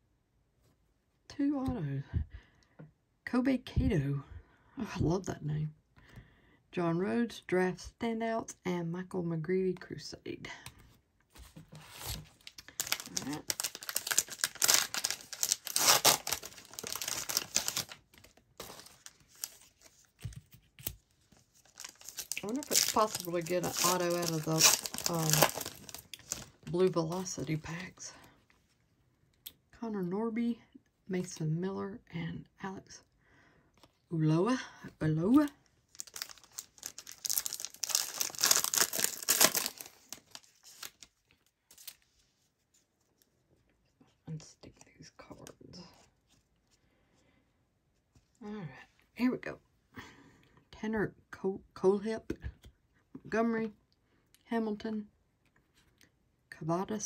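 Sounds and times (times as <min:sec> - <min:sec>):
foil wrapper crinkling and tearing: 0:12.0 - 0:20.1, 0:20.8 - 0:26.6, 0:35.9 - 0:42.0.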